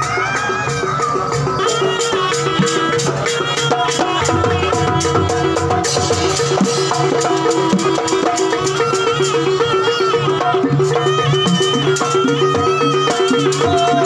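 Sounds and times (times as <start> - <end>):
drums: 0.0 - 14.0
high wavering melody: 0.0 - 14.0.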